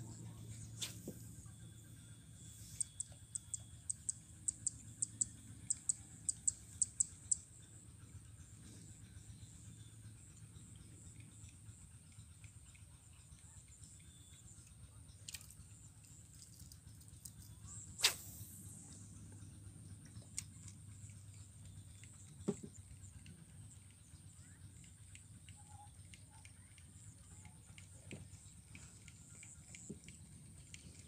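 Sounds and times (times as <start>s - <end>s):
rod and reel clicks: 10.7s - 19.0s, 20.0s - 31.0s
fishing rod swishing: 18.0s - 18.4s.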